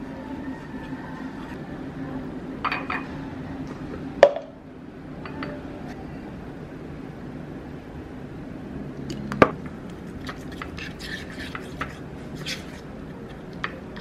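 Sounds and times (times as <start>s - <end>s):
dishes and utensils clinking: 2.6s - 3.2s.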